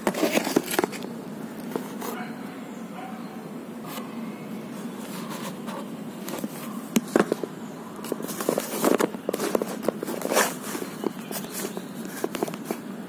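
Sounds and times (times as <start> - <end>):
paper rustling: 0.0 - 2.3, 4.7 - 12.9.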